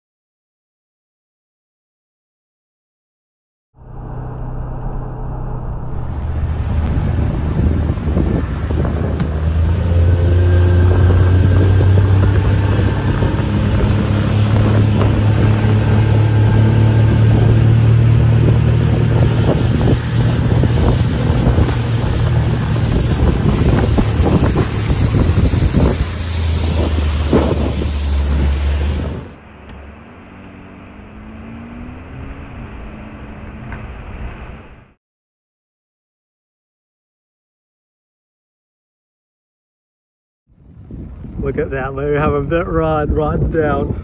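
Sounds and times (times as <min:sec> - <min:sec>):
boat motor running: 0:03.8 - 0:34.5
muffled vehicle driving: 0:03.8 - 0:35.0
wind buffeting microphone: 0:05.7 - 0:29.4, 0:40.5 - 0:44.0.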